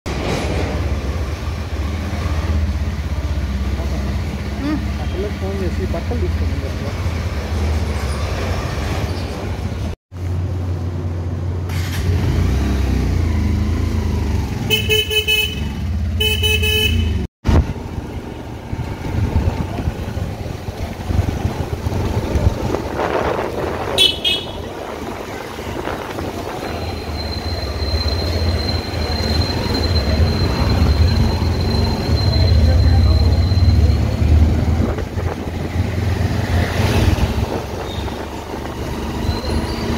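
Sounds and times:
vehicle horn honking: 0:14.7 - 0:17.3, 0:24.0 - 0:24.8
wet road noise: 0:17.4 - 0:39.9.

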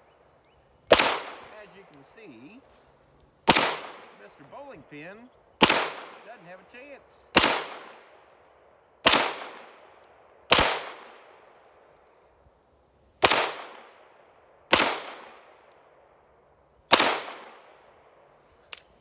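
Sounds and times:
pistol shots echoing: 0:00.9 - 0:02.5, 0:03.4 - 0:11.6, 0:13.2 - 0:16.0, 0:16.9 - 0:18.2.

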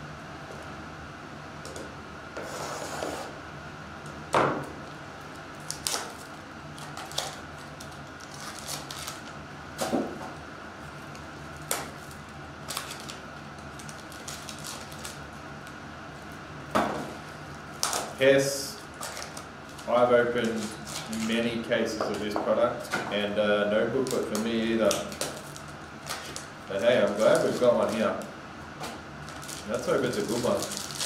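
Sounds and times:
foil packs crinkling: 0:05.6 - 0:09.4, 0:11.0 - 0:15.8, 0:17.7 - 0:21.6, 0:23.8 - 0:28.3, 0:28.9 - 0:31.0.

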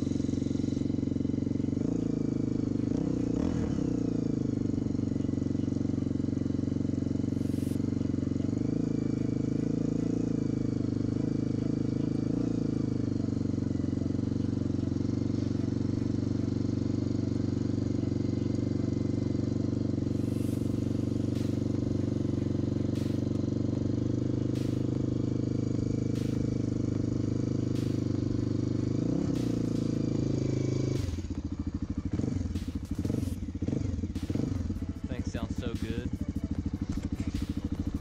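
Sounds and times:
motorcycle engine idling: 0:00.0 - 0:38.0
throttle blip: 0:20.3 - 0:23.5, 0:24.5 - 0:25.1, 0:26.1 - 0:26.7, 0:27.7 - 0:28.4, 0:29.2 - 0:31.4, 0:32.6 - 0:33.4.

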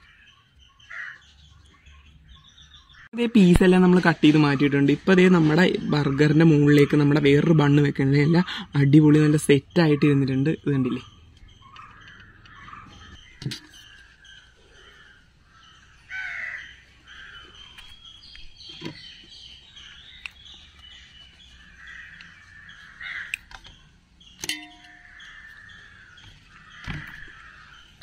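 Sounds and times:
crows cawing: 0:00.0 - 0:01.3, 0:11.0 - 0:18.0, 0:21.6 - 0:23.8, 0:24.7 - 0:28.0.

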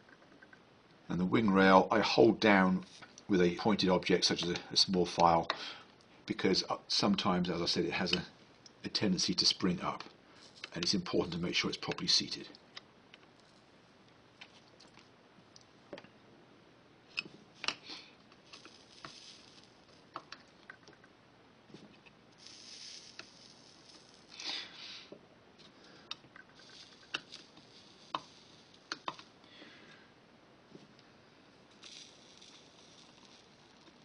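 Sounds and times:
short hisses: 0:17.8 - 0:18.2, 0:24.3 - 0:25.1.

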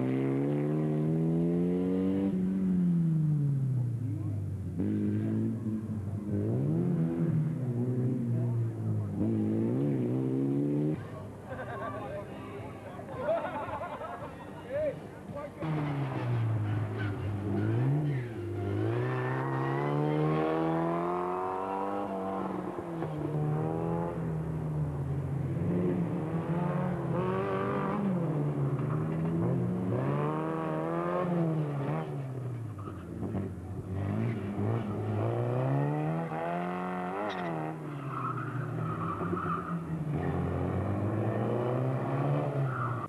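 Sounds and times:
race car engine revving: 0:15.6 - 0:43.0.

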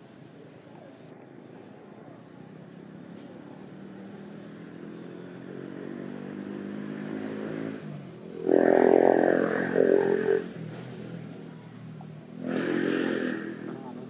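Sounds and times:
vehicle engine hum: 0:00.0 - 0:14.0
vehicle passing loudly: 0:03.7 - 0:11.4, 0:12.3 - 0:14.0.

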